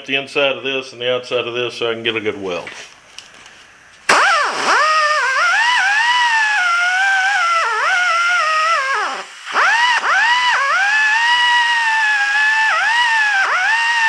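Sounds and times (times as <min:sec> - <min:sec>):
die grinder whining on steel: 0:04.1 - 0:14.0.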